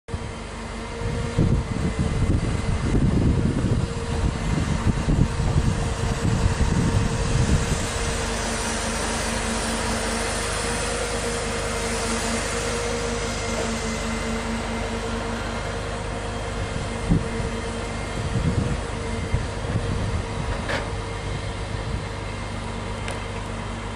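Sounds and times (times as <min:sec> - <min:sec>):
crane engine and hydraulic pump: 0:00.1 - 0:23.9
wind buffeting microphone: 0:00.9 - 0:09.0, 0:16.5 - 0:22.2.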